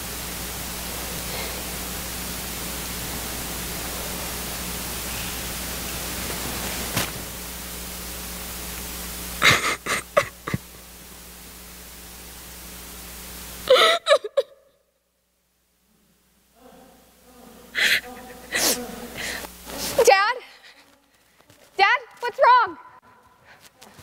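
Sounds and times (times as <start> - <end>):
steady hiss with low hum: 0.0 - 24.0
woman sobbing: 9.4 - 10.7, 13.6 - 14.7, 17.7 - 19.4.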